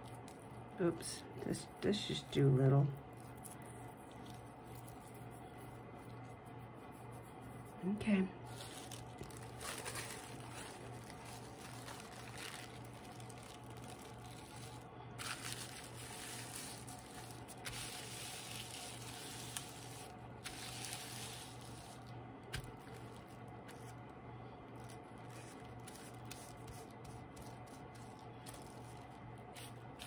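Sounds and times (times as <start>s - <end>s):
tissue paper rustling: 8.5s - 24.0s.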